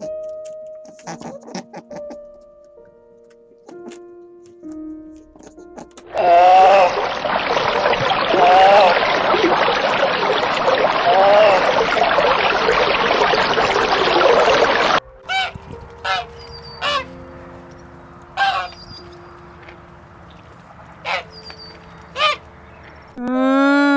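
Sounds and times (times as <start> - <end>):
geese honking: 6.1 - 11.9, 15.2 - 17.2, 18.2 - 19.2, 20.3 - 22.9.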